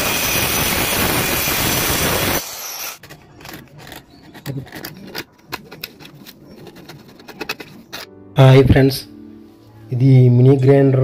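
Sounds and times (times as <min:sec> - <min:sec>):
circular saw cutting wood: 0:00.0 - 0:04.2
hand chisel scraping wood: 0:03.0 - 0:08.1.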